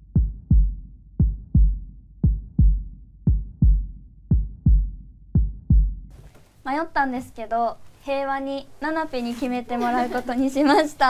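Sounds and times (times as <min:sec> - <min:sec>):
heartbeat thumps: 0:00.0 - 0:06.2.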